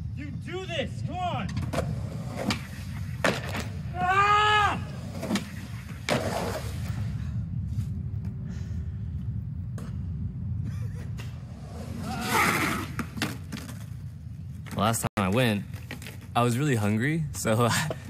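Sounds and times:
low rumble: 0:04.8 - 0:14.7.

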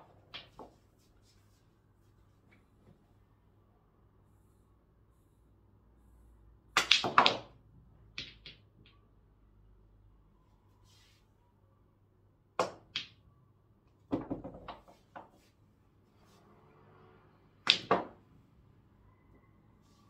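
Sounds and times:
pool balls clicking: 0:00.0 - 0:00.8, 0:06.8 - 0:07.5, 0:08.1 - 0:08.9, 0:12.6 - 0:13.2, 0:14.1 - 0:15.4, 0:17.6 - 0:18.2
cue striking ball: 0:17.6 - 0:18.2.

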